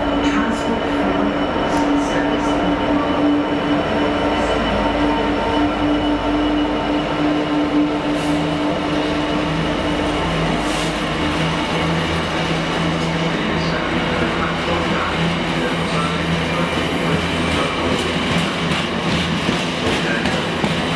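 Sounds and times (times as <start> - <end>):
diesel locomotive engine hum: 0.0 - 20.9
train wagons rolling over rails: 8.2 - 20.9.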